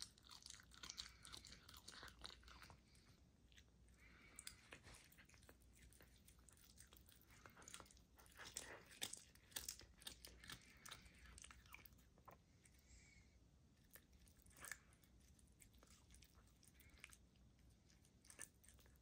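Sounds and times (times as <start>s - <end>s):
animal crunching chicken bones: 0.0s - 3.2s, 4.3s - 12.4s.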